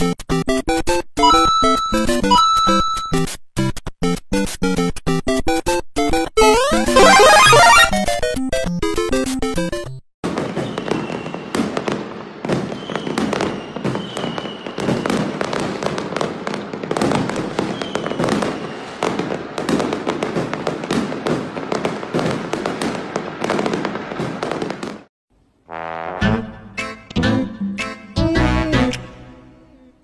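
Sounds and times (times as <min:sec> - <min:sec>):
fireworks bangs and crackles: 0:10.2 - 0:25.1.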